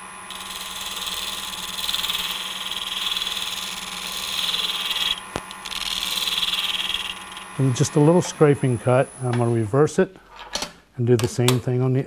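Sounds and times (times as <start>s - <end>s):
lathe humming: 0.0s - 9.6s
tool scraping wood on lathe: 0.3s - 8.2s.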